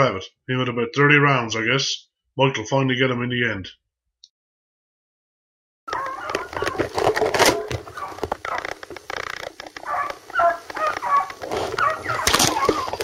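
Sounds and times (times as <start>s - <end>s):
hunting dogs baying: 5.9s - 13.0s.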